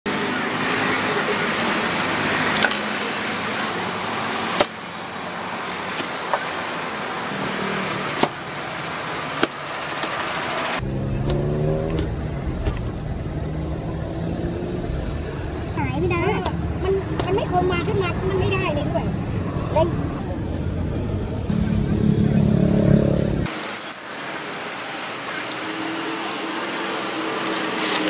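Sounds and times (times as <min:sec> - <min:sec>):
street traffic noise: 0:00.1 - 0:28.0
low engine rumble: 0:10.8 - 0:23.5.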